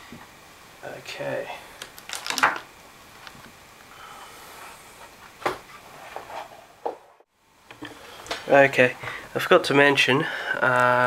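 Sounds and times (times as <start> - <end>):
faint hiss: 0.0 - 5.3.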